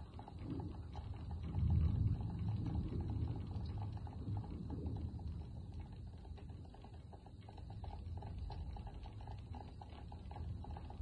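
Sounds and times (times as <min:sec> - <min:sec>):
low rumble of thunder: 0:00.0 - 0:06.3
rain pattering: 0:00.0 - 0:11.0.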